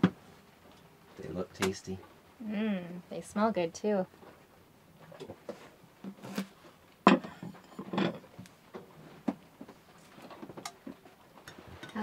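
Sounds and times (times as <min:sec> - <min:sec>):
objects clattering: 0:05.2 - 0:08.4.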